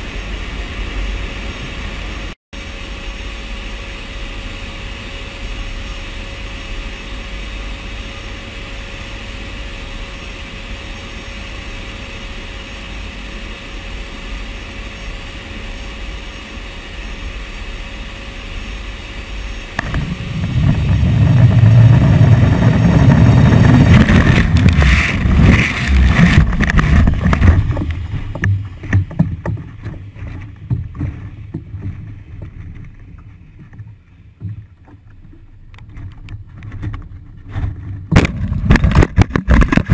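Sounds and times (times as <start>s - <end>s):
turboprop engines droning: 0.0s - 38.1s
fluttering wind: 0.0s - 39.9s
wind buffeting and rumbling: 19.7s - 39.9s
rattles and knocks: 19.8s - 39.9s.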